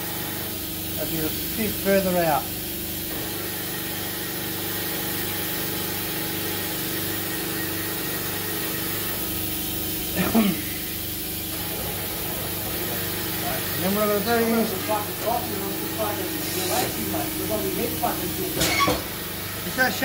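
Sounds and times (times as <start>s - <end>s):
machine motor humming: 10.0s - 20.0s.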